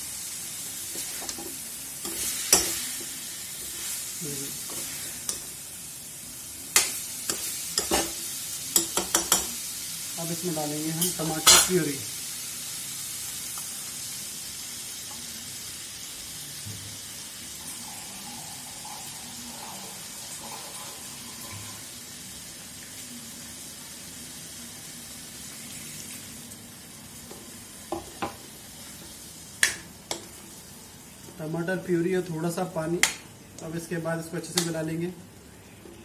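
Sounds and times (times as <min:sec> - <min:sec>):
food sizzling in a pan: 0:00.0 - 0:36.0.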